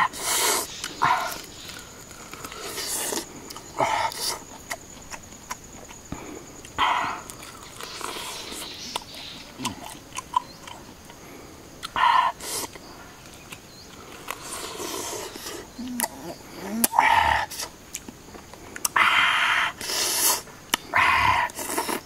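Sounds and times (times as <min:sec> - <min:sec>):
man chewing and lip smacking: 0:00.8 - 0:11.2, 0:11.8 - 0:19.0.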